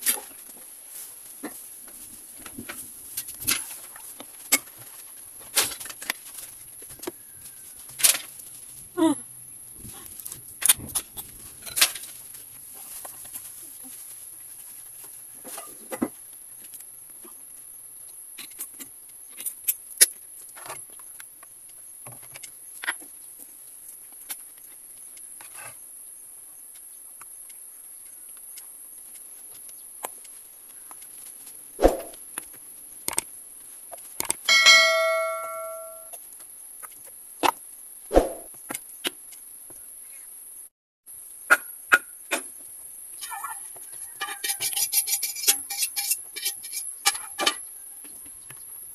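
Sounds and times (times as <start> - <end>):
bell-like ding: 34.5 - 36.1.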